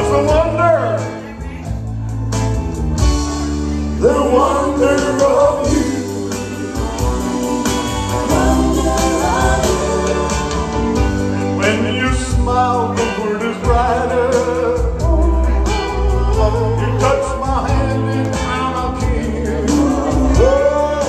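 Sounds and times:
man singing into a microphone: 0.0s - 1.4s, 4.0s - 7.0s, 11.6s - 21.0s
backing track with beat and bass: 0.0s - 21.0s.

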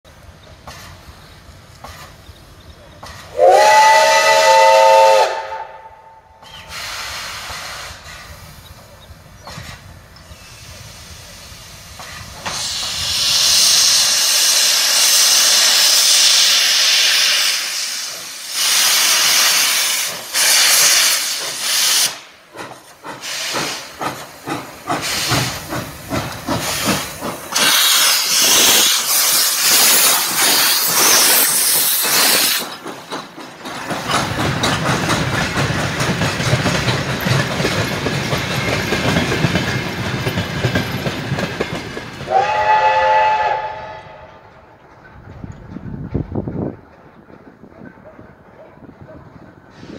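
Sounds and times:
steam locomotive whistle: 3.3s - 7.5s, 42.3s - 44.4s
steam hissing: 6.4s - 33.4s, 49.6s - 49.9s.

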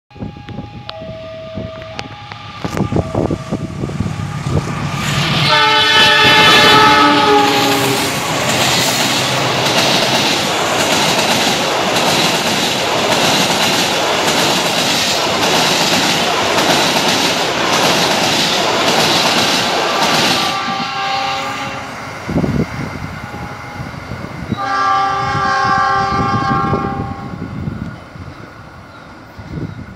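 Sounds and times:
train horn chord: 0.2s - 8.2s, 20.3s - 22.0s, 24.5s - 27.4s
train wheels clattering: 4.4s - 20.8s.

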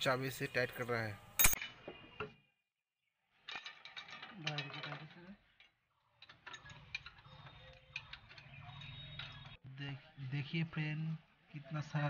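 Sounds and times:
spanner clinking against steel nuts: 1.4s - 1.6s.

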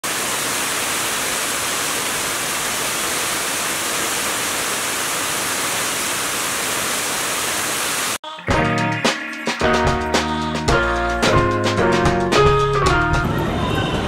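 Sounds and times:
water rushing over rocks: 0.0s - 8.2s.

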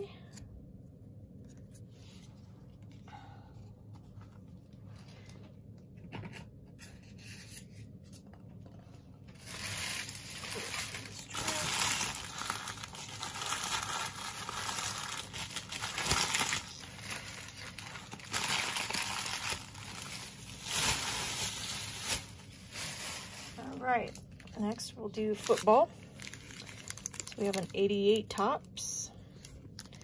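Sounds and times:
cards and wrappers crinkling: 9.2s - 30.0s.

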